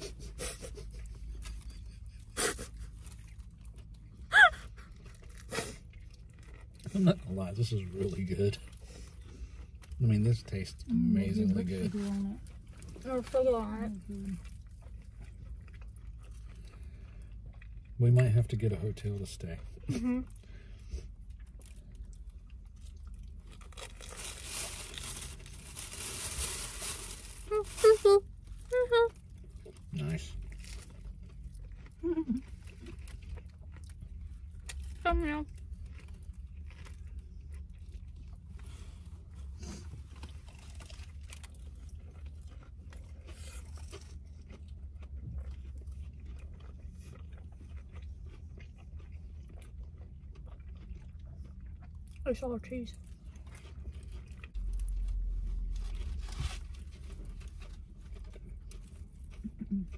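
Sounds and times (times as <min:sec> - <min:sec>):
person chewing crunchy food: 0:00.0 - 0:13.4, 0:14.0 - 0:27.4, 0:28.3 - 0:52.2, 0:52.9 - 0:59.9
low hum: 0:00.0 - 0:59.9
crunching bite into fried crust: 0:39.9 - 0:52.0.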